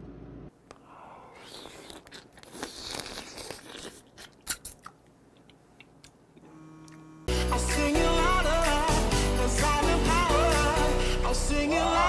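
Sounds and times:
crab shell crunching when chewed: 1.4 - 6.0.

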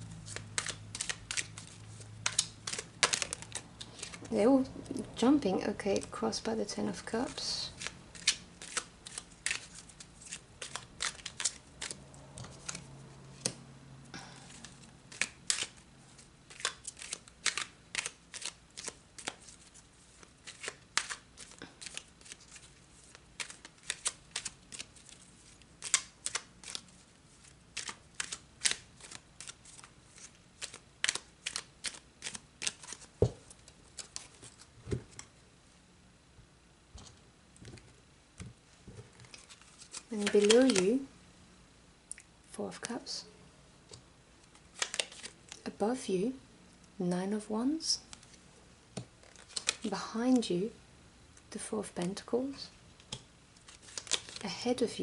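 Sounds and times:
cards being shuffled: 0.1 - 4.4, 7.2 - 13.6, 14.3 - 35.3, 37.0 - 41.1, 44.4 - 45.6, 49.0 - 50.5, 53.0 - 54.5.

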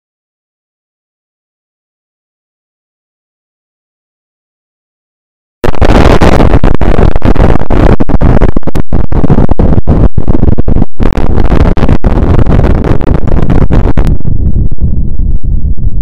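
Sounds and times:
harsh distorted noise: 5.6 - 16.0.

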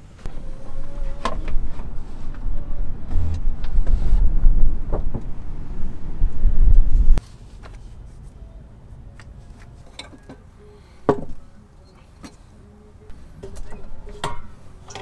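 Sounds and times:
loud low rumble: 0.3 - 7.2.

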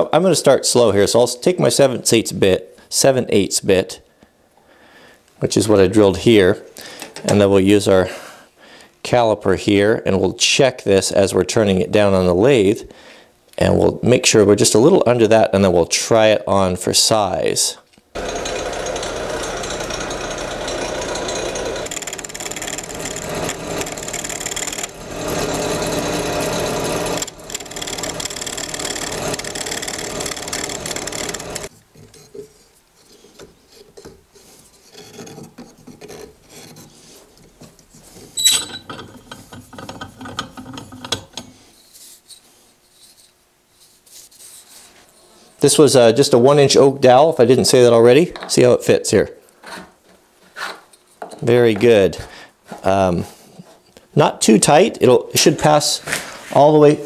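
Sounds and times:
lathe motor hum: 18.2 - 31.7
rasp scraping wood on lathe: 18.2 - 38.5
faint handling sounds: 39.2 - 45.6.

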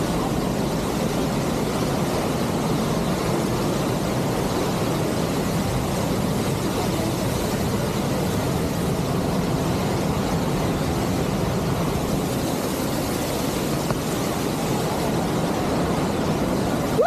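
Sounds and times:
churning river water: 0.0 - 17.0
waterfalls roaring: 0.0 - 17.0.

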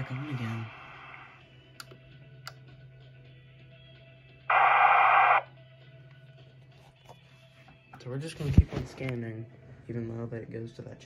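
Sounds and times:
burst of static from speaker: 0.0 - 1.4, 4.5 - 5.4.

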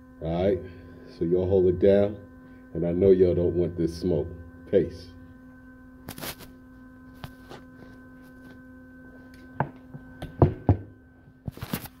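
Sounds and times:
electrical hum: 0.0 - 12.0
sharp knocks and thumps: 9.6 - 10.9.

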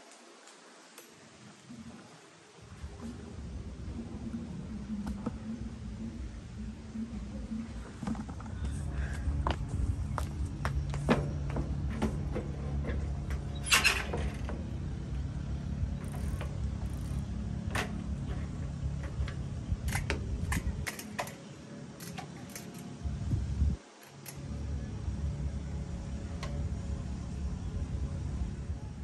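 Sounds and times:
bicycle clicks and rattles: 10.9 - 25.4
bicycle kickstand rattle: 16.0 - 21.4
wind on microphone: 19.0 - 20.9, 23.0 - 23.8.

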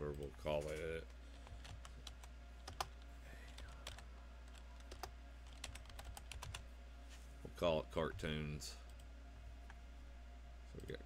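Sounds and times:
steady low hum: 0.0 - 11.0
keyboard keys clicking: 4.8 - 6.6.

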